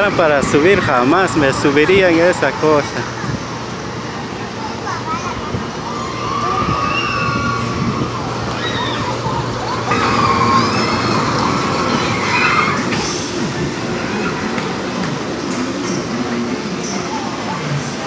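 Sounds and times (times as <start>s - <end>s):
high wavering squeals: 5.8s - 14.5s.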